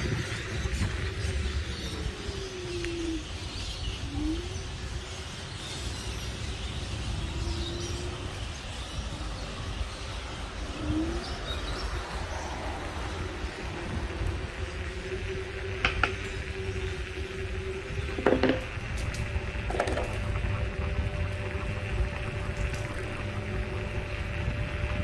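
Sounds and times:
wind and tyres rumbling: 0.0s - 25.0s
faint electric motor whine: 11.8s - 25.0s.

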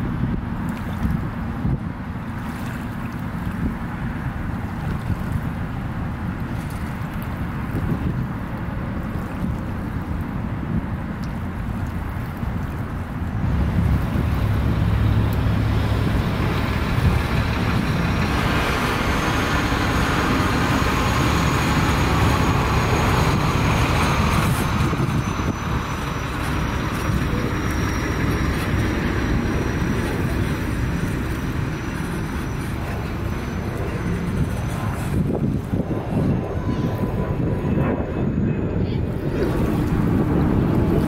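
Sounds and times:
steady low rumble: 0.0s - 41.0s
thin high whine: 13.6s - 40.2s.

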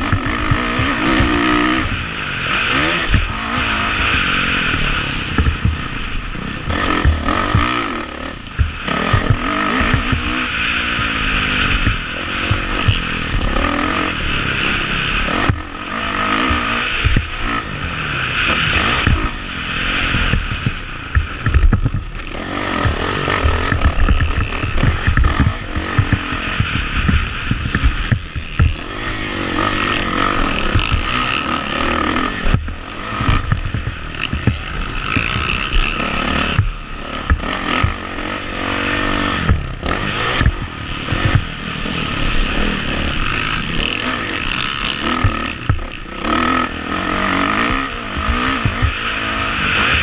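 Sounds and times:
dirt bike engine revving: 0.0s - 50.0s
wind rumble: 0.0s - 50.0s
low thumps: 4.7s - 13.8s, 20.1s - 31.4s, 32.4s - 38.5s, 39.3s - 41.6s.

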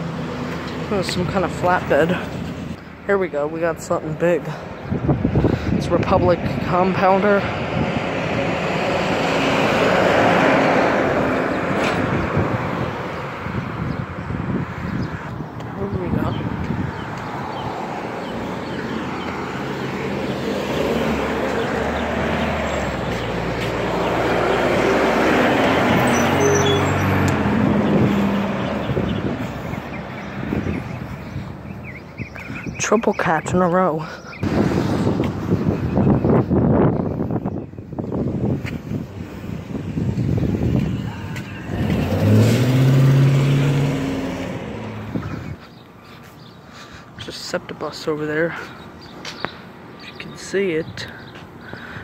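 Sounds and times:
diesel truck driving past: 7.4s - 13.8s, 16.4s - 31.6s, 39.8s - 45.6s
delivery van driving past: 40.9s - 45.3s.

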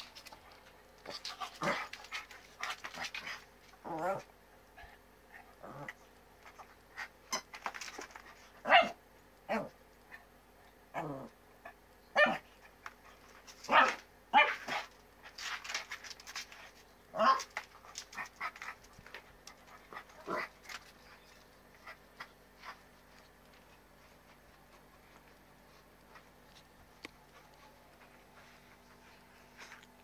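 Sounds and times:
small dog yipping and barking: 8.6s - 9.0s.

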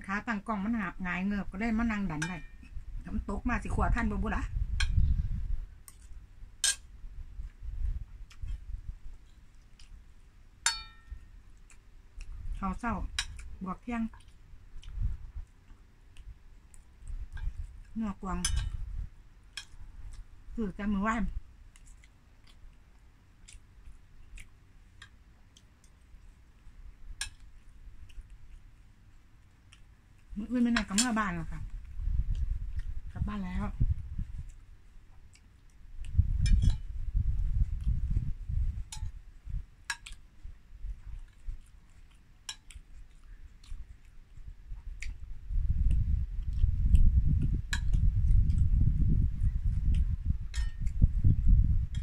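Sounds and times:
wind rumble on microphone: 0.0s - 10.1s, 12.1s - 21.6s, 30.3s - 35.2s, 35.8s - 39.8s, 40.4s - 52.0s
person chewing food: 5.8s - 12.6s, 13.2s - 18.0s, 18.6s - 20.5s, 21.4s - 30.9s, 31.6s - 33.1s, 33.8s - 52.0s
soft mouth and cutlery clicks: 8.2s - 10.0s, 13.1s - 13.5s, 14.1s - 20.3s, 21.7s - 33.0s, 33.9s - 52.0s
metal spoon clinking on plate: 10.7s - 11.2s, 50.5s - 50.9s.

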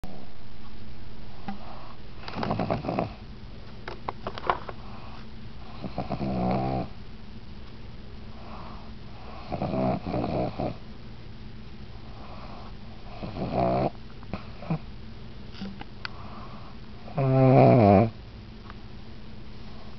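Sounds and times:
dog snoring: 1.6s - 3.2s, 4.9s - 7.0s, 8.4s - 10.8s, 12.2s - 14.8s, 16.2s - 18.2s.

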